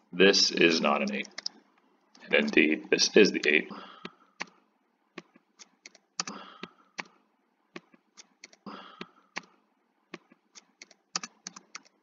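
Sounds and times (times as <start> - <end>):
keyboard and mouse clicking: 1.0 - 1.6, 3.4 - 4.6, 5.2 - 7.2, 7.8 - 9.5, 10.1 - 12.0.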